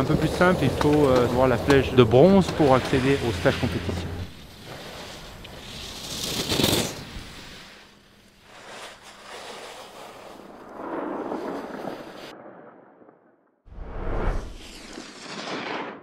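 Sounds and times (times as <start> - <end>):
skis scraping across hard snow: 0.0 - 12.3.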